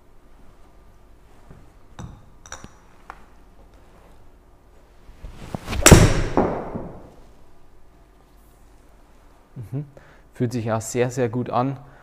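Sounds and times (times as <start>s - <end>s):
faint clicks and clinks: 2.0s - 3.0s.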